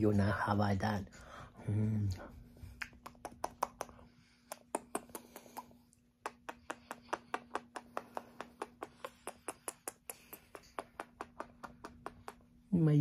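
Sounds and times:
kissing smacks of lips: 0:02.8 - 0:12.6.

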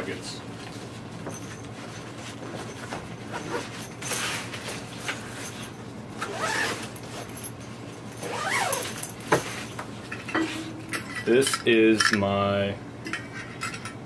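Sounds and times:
zippers being pulled: 0:06.2 - 0:07.0, 0:08.2 - 0:09.1
backpack fabric rustling: 0:06.3 - 0:07.4, 0:08.2 - 0:09.8.

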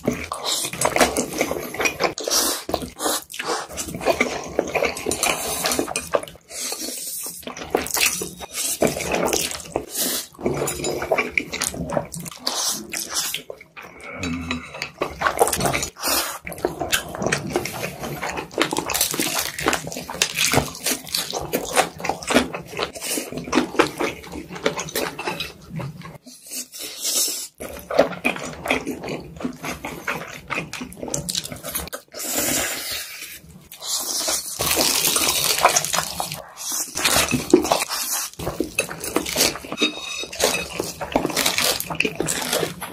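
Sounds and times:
noodles being slurped: 0:00.0 - 0:42.9
crunching bites: 0:34.5 - 0:39.8, 0:40.4 - 0:42.9.

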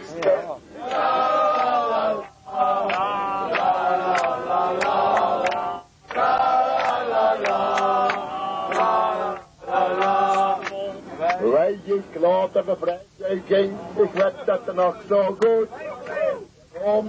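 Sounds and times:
men singing in chorus: 0:00.8 - 0:11.3.

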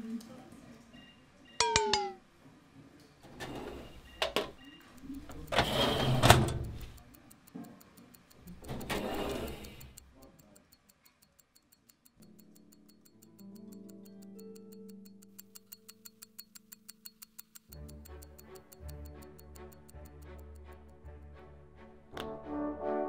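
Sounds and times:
light even ticking: 0:04.1 - 0:21.0
sharp clicks: 0:04.6 - 0:21.0.

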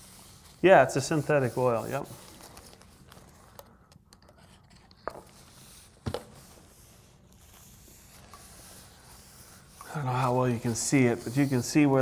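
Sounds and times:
paper rag rustling on metal: 0:00.0 - 0:03.3, 0:07.4 - 0:12.0.

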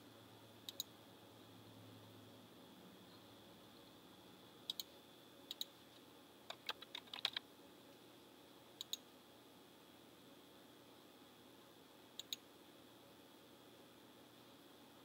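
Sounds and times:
computer mouse clicks: 0:00.7 - 0:00.9, 0:04.7 - 0:04.9, 0:05.5 - 0:05.7, 0:06.5 - 0:07.4, 0:08.8 - 0:09.0, 0:12.2 - 0:12.4
keyboard typing: 0:06.5 - 0:07.4.

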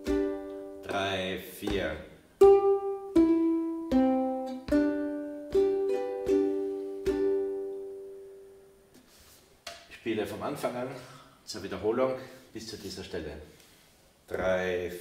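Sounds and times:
ukulele fingerstyle playing: 0:00.0 - 0:08.7.

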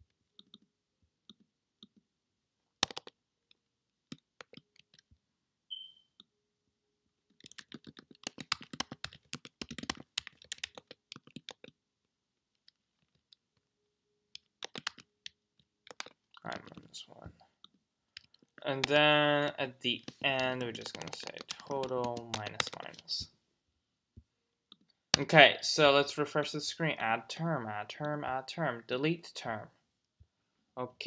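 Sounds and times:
computer keyboard typing: 0:02.8 - 0:03.2, 0:04.1 - 0:05.1, 0:07.3 - 0:11.8, 0:14.4 - 0:17.0, 0:18.2 - 0:23.2.

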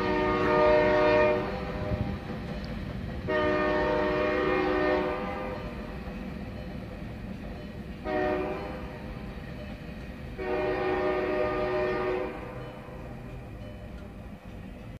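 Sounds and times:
locomotive air horn blasts: 0:00.0 - 0:02.2, 0:03.2 - 0:05.8, 0:08.0 - 0:09.0, 0:10.4 - 0:13.2
train rumbling: 0:00.0 - 0:14.9.

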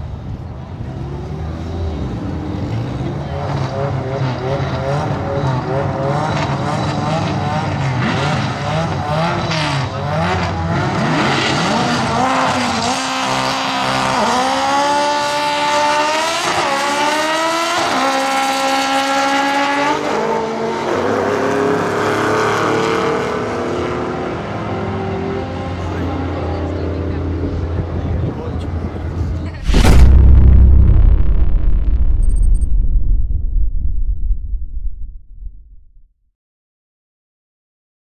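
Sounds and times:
drag racing car engines revving: 0:00.3 - 0:28.0.

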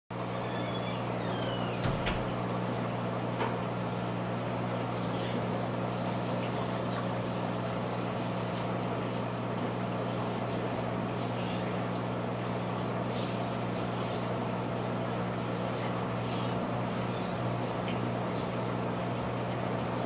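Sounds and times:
aquarium pump hum: 0:00.1 - 0:20.0.

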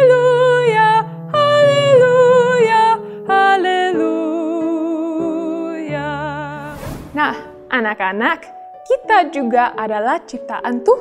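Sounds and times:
woman singing a hymn: 0:00.0 - 0:06.7.

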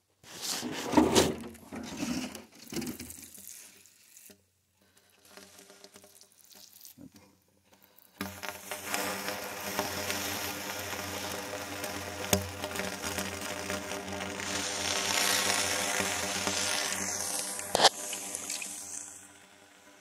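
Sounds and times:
water sizzling on hot metal: 0:02.5 - 0:20.0
dry leaves rustling: 0:13.1 - 0:18.9.

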